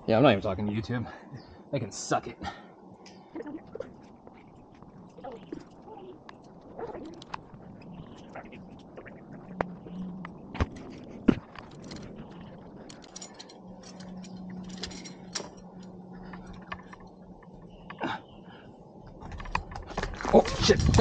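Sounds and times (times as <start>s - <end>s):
climbing gear clinking: 4.1s - 18.2s.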